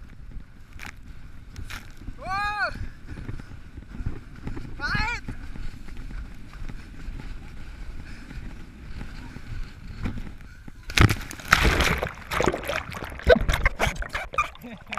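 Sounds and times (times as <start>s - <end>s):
churning water and splashes: 11.0s - 14.9s
water crash: 11.0s - 14.9s
wind and water rushing: 11.0s - 14.9s.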